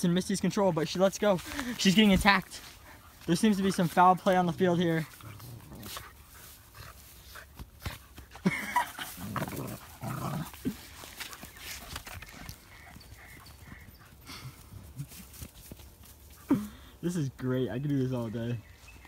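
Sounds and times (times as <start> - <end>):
paws scuffling: 0.4 - 16.5
puppies growling and yelping: 8.6 - 15.0.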